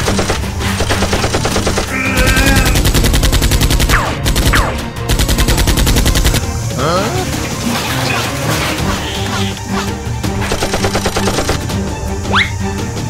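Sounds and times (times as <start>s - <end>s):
machine-gun fire: 0.0s - 6.4s, 10.5s - 11.6s.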